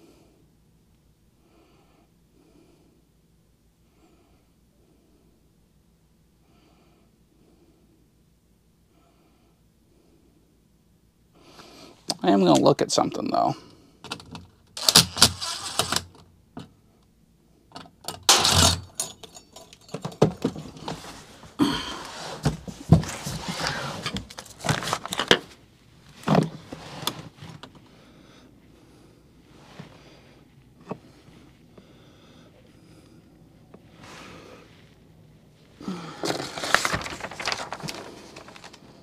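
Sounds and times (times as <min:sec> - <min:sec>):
cordless driver running: 0:14.8 - 0:16.0
metal cover rattling and clunking: 0:18.1 - 0:20.8.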